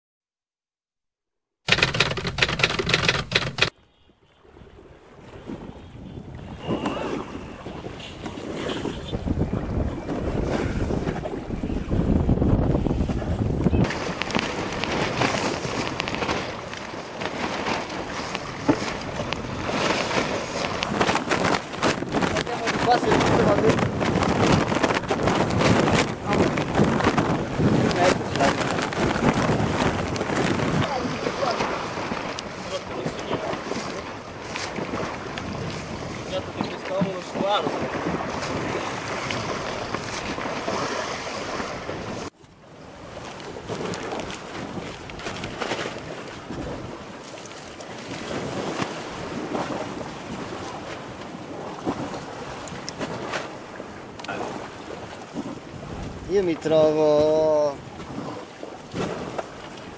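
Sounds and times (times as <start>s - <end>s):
irregular crackles: 1.7s - 3.7s
waves: 1.7s - 59.9s
wind buffeting microphone: 4.4s - 59.9s.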